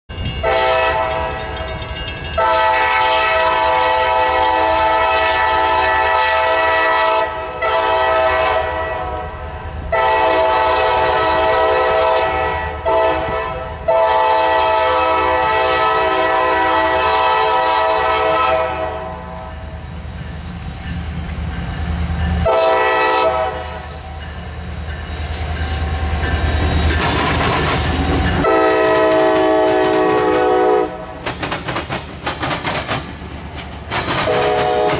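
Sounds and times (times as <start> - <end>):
train wheels clacking and squealing: 0.1 - 4.9, 18.9 - 22.8, 23.4 - 34.9
locomotive air horn blasts: 0.4 - 1.5, 2.4 - 19.8, 22.3 - 24.2, 28.4 - 31.2, 34.2 - 34.9.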